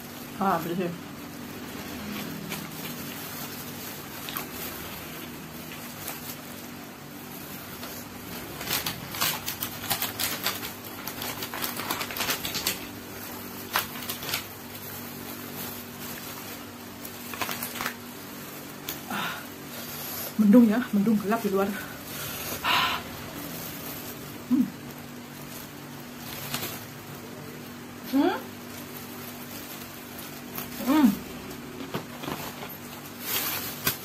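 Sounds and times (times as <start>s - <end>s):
gloved hand handling food in paper box: 0.0s - 19.7s, 20.3s - 34.0s
clicks and crinkles: 0.1s - 19.7s, 20.4s - 34.0s.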